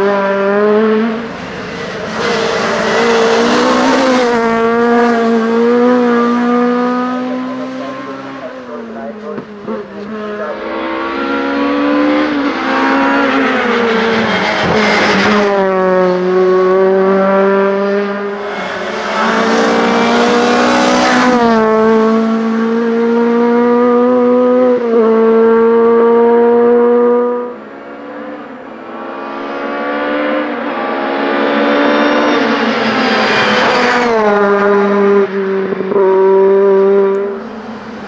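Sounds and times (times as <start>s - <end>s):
race car engine revving: 0.0s - 38.0s.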